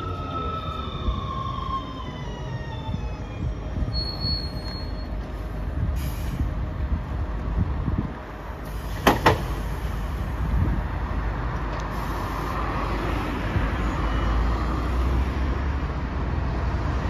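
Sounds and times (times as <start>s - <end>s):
high squeal: 0.0s - 5.2s
electric tram traction whine: 0.0s - 17.0s.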